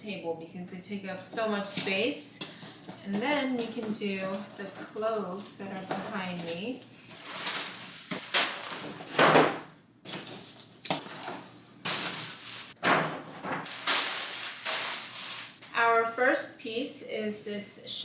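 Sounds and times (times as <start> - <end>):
paper bags rustling and crinkling: 5.4 - 9.3, 10.1 - 15.6.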